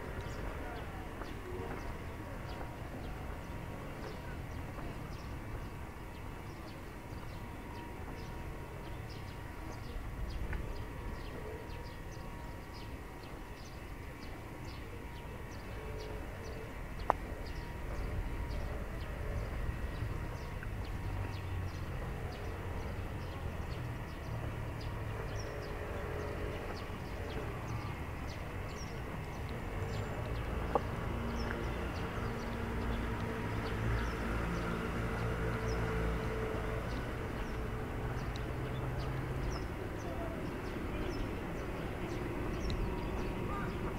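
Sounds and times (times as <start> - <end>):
distant traffic rumble: 0.0 - 43.9
vehicle engine passing: 17.5 - 43.9
light high ticks: 36.9 - 39.6.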